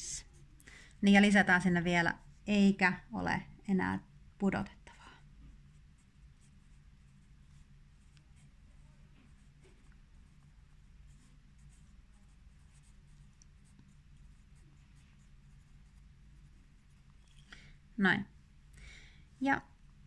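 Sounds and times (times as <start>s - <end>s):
pencil writing on paper: 7.2s - 17.5s.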